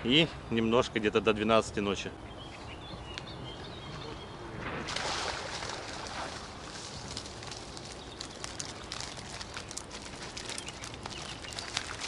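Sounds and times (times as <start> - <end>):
water streaming off net: 4.8 - 7.2
water dripping: 4.9 - 12.0
small crackling ticks: 6.9 - 12.0.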